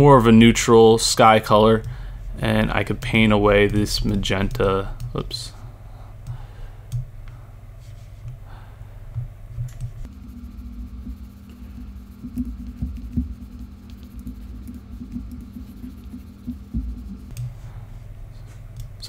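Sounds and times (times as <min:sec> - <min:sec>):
low steady hum: 0:00.0 - 0:19.0
computer mouse clicks: 0:06.2 - 0:07.1.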